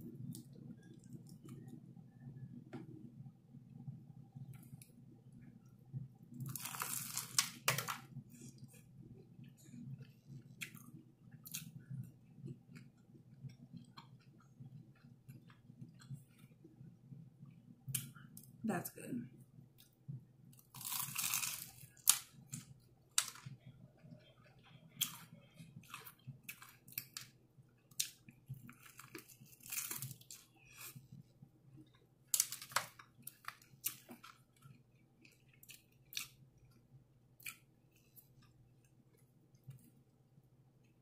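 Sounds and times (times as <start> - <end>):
crunching fried chicken: 6.4 - 8.1, 20.6 - 31.0.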